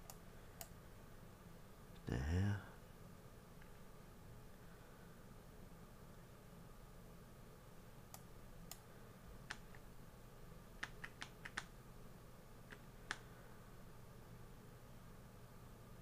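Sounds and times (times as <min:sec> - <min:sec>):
computer mouse clicks: 0:00.0 - 0:00.8, 0:08.1 - 0:09.8, 0:10.8 - 0:11.7, 0:12.7 - 0:13.3
faint steady hum: 0:00.0 - 0:16.0.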